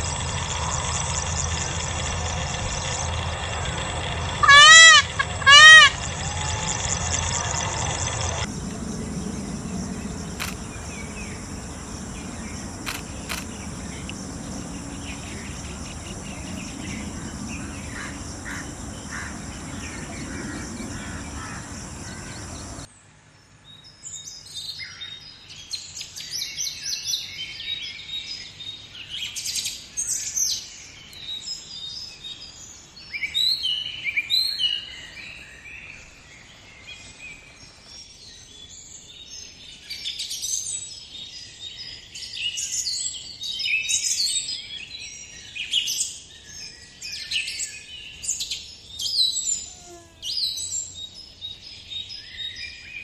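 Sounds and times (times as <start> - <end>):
high insect drone: 4.1 - 22.9
small birds chirping: 8.4 - 22.9.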